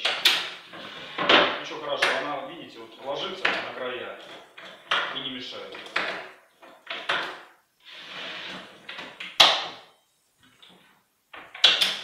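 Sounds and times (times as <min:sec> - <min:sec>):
clamp scraping slide: 0:00.6 - 0:01.6, 0:07.8 - 0:09.0.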